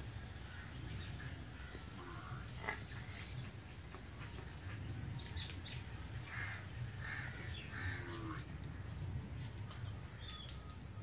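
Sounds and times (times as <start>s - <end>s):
small birds chirping faintly: 0.0s - 11.0s
steady low rumble: 0.0s - 11.0s
crows cawing: 0.5s - 3.2s, 6.2s - 8.5s.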